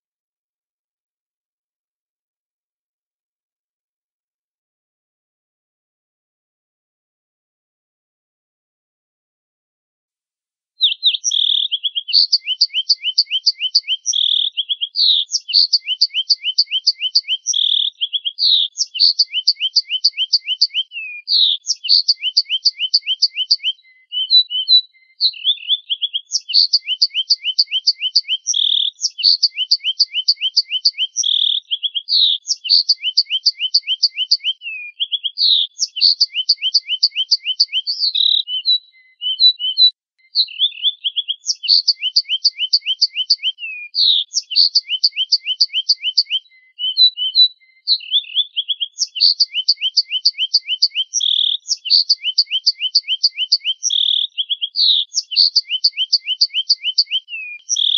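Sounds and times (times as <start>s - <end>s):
finch song with trills: 10.8s - 57.9s.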